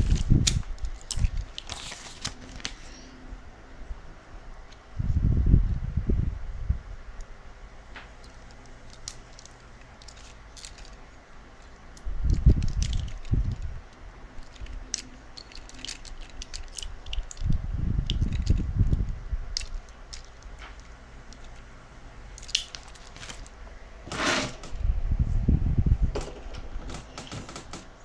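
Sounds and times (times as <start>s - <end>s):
toy parts clicking and rustling: 0.0s - 2.7s, 8.2s - 21.7s, 22.3s - 23.5s
low handling bumps: 24.0s - 28.0s.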